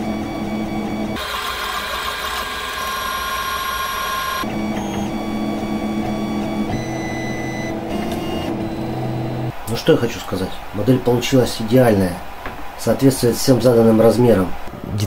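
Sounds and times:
stepper motors whining: 0:00.0 - 0:10.2.

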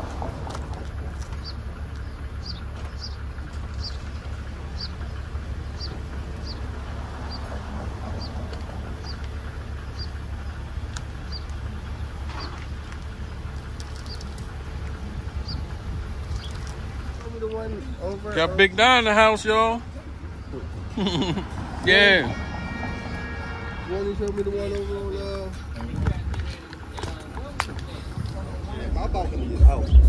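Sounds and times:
car engine idling: 0:00.0 - 0:30.0
bird chirping: 0:01.4 - 0:06.7, 0:07.3 - 0:12.7, 0:15.1 - 0:15.7.

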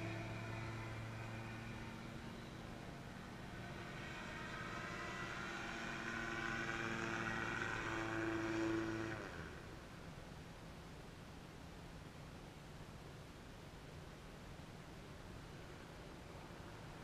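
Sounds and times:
microlight engine flying past: 0:00.0 - 0:10.0.

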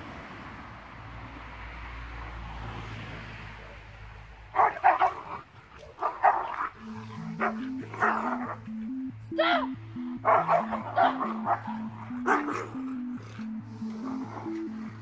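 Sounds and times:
dog barking: 0:04.5 - 0:08.6, 0:10.2 - 0:12.9
simple music melody: 0:06.7 - 0:15.0.

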